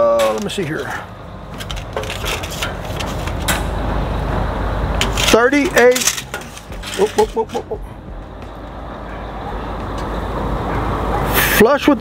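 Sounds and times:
tape measure clicking on metal: 5.0 - 7.6.

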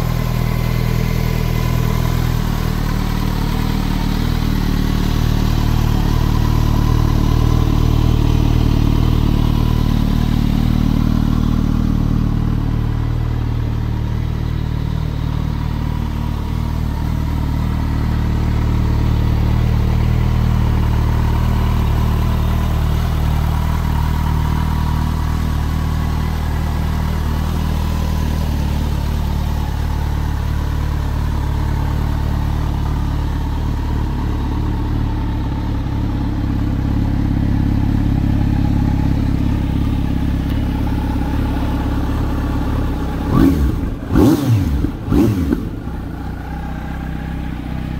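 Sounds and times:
motorcycle engine idling and revving: 0.0 - 47.9.

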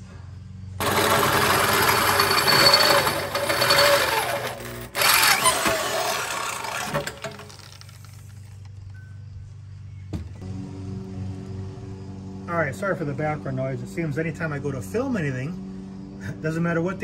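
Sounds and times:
electric drill boring through metal: 0.8 - 8.5.

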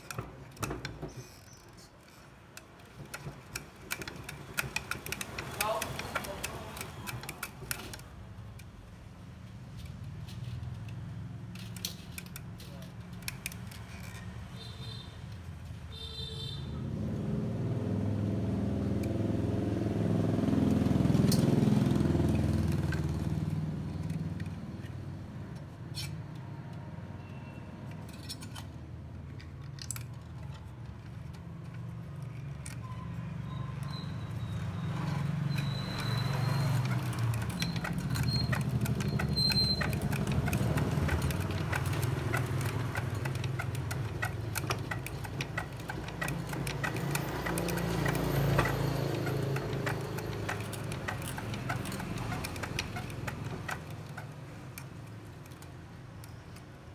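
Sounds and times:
coil winder ticking and rattling: 2.4 - 8.7, 34.3 - 56.6
passing vehicle engine rumble: 16.7 - 25.4, 33.1 - 55.3.

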